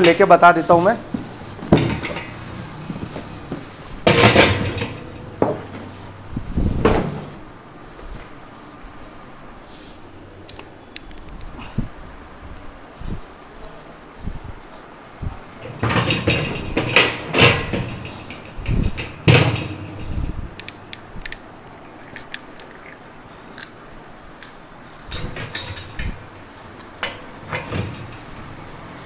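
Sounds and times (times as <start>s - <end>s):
metal knocks and clatter: 1.2s - 5.9s, 15.6s - 20.3s, 25.1s - 28.5s
metal clicks: 20.5s - 23.8s.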